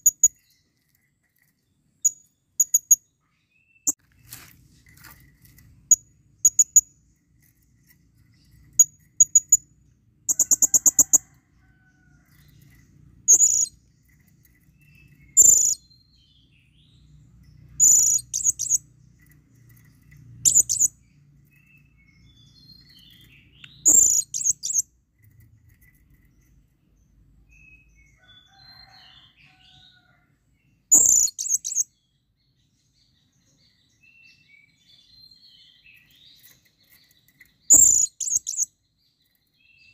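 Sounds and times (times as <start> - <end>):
parrot trill: 10.3 - 11.4.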